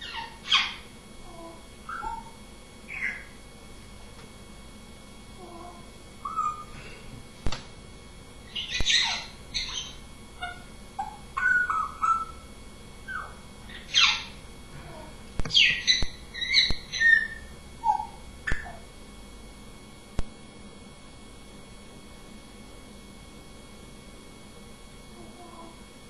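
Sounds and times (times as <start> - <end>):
parrot chirps squawks and whistles: 0.0 - 3.4, 6.2 - 6.8, 8.5 - 14.4, 15.5 - 18.8.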